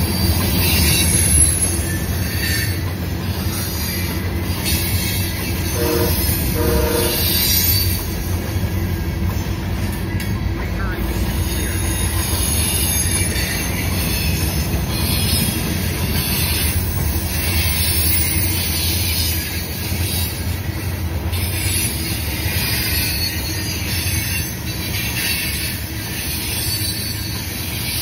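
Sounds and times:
metallic wheel squeal: 0.0s - 9.0s, 11.3s - 28.0s
train wheels rumbling on rail: 0.0s - 28.0s
wheels clicking over rail joints: 7.3s - 28.0s.

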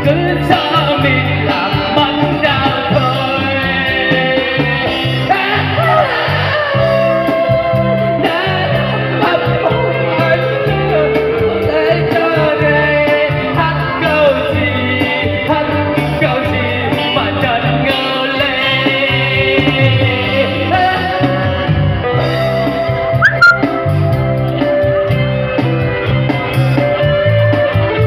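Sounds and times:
man singing into microphone: 0.0s - 21.7s
guitar: 0.0s - 28.0s
live band playing: 0.0s - 28.0s
bass line: 23.0s - 24.8s.

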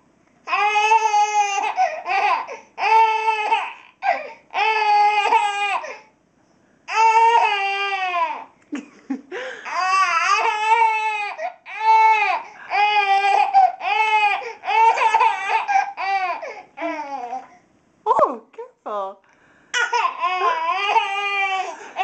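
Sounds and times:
baby squealing: 19.8s - 22.0s.

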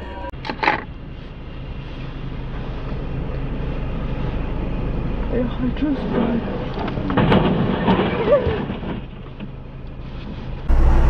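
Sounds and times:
truck crashing into cars: 6.8s - 9.6s.

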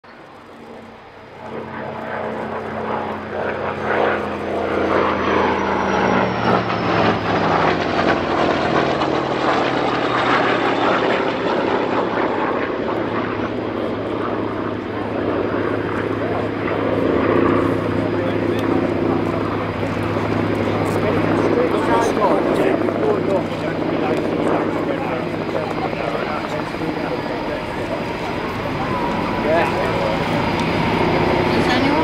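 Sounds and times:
fighter jets flying past: 0.1s - 32.0s
high engine whine: 0.1s - 32.0s.

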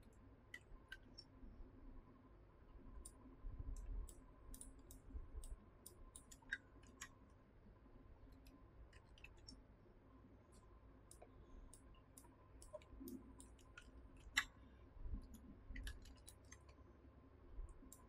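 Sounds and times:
computer mouse clicks: 0.0s - 1.4s, 3.0s - 7.2s, 8.3s - 9.6s, 10.5s - 14.6s, 15.2s - 16.8s, 17.7s - 18.0s.

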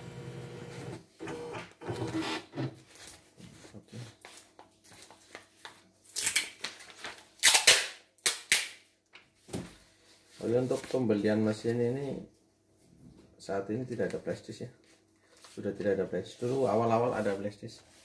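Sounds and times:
embroidery machine motor humming: 0.0s - 0.9s.

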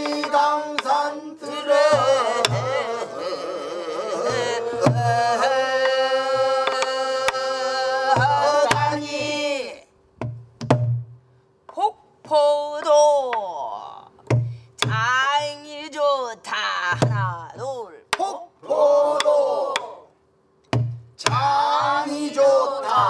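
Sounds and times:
woman singing with heavy vibrato: 0.0s - 9.9s
barrel drum strokes: 8.1s - 9.4s.

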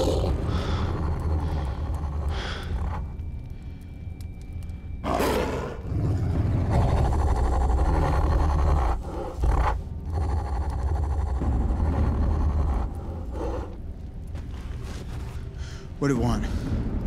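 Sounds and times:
wolves growling and snarling: 0.0s - 3.2s, 5.0s - 13.8s.

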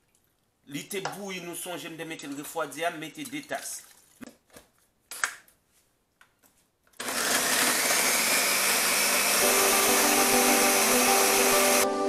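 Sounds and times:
blender motor running: 7.0s - 11.8s.

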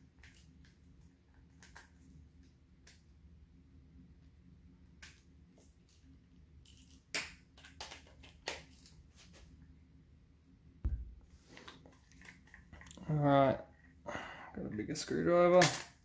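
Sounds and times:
dull thump: 10.8s - 11.3s.

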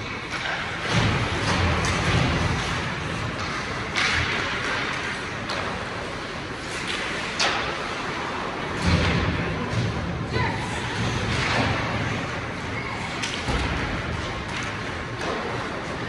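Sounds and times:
skates scraping on ice: 0.0s - 9.8s
hockey sticks and puck clacking: 0.0s - 16.0s.

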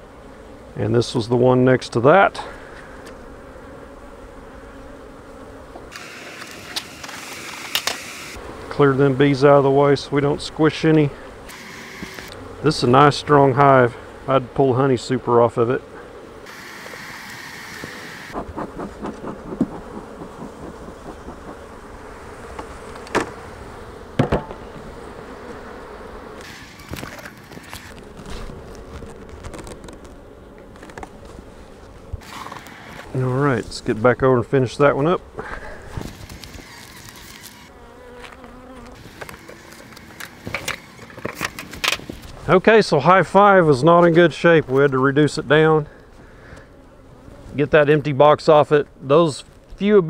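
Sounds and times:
honey bees buzzing: 0.0s - 50.0s
wooden hive parts knocking: 17.8s - 21.9s, 22.5s - 23.4s, 24.2s - 24.8s.

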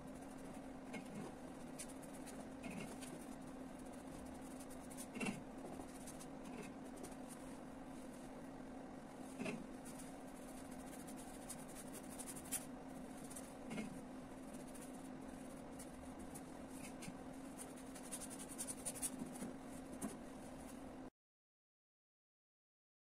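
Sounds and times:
paintbrush scratching on canvas: 0.0s - 8.4s, 9.1s - 20.8s
steady low hum: 0.0s - 21.1s.

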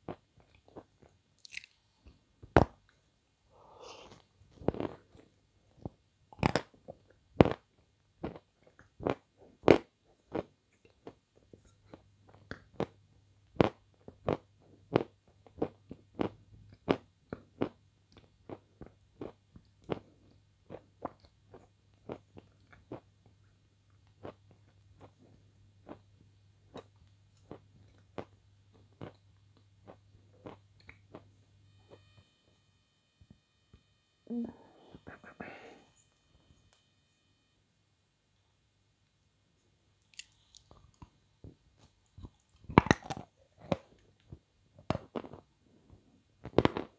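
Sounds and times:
biting and chewing ice cream: 41.8s - 45.4s.

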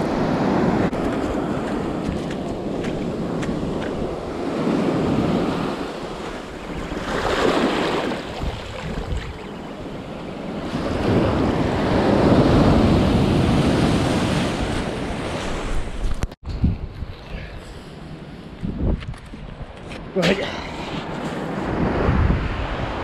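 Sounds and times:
sea surf washing on beach: 0.0s - 16.1s
wind rumbling on microphone: 0.0s - 23.0s.

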